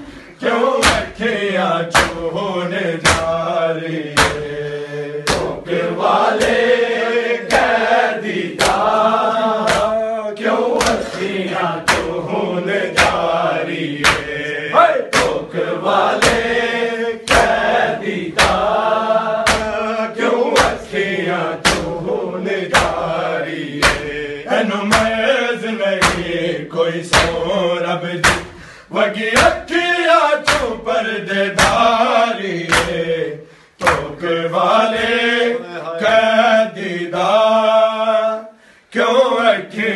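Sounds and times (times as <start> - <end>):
men chanting: 0.0 - 39.9
hands slapping chests: 0.8 - 1.2, 1.9 - 2.3, 3.0 - 4.6, 5.2 - 6.8, 7.4 - 24.2, 24.9 - 25.2, 26.0 - 26.4, 27.1 - 27.5, 28.2 - 28.7, 29.4 - 29.7, 30.4 - 30.8, 31.5 - 33.1, 33.8 - 34.3.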